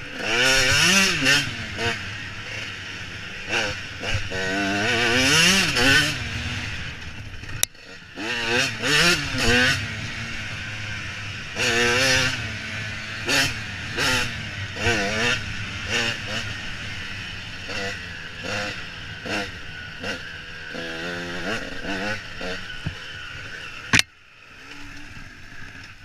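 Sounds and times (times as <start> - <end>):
dirt bike engine revving: 0.0 - 26.0
sharp click: 23.9 - 24.1.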